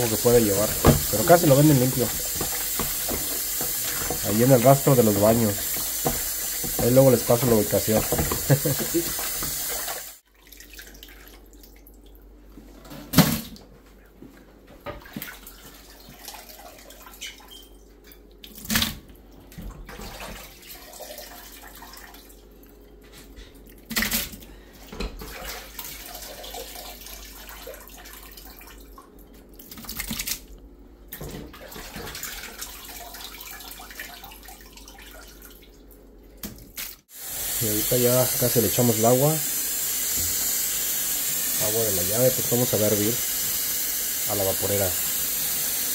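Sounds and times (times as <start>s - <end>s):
water splashing and dripping: 0.0s - 12.1s.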